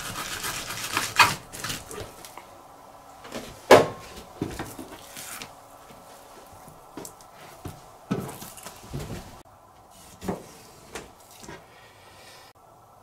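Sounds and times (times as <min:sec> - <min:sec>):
knife scraping fish skin: 0:00.0 - 0:02.0.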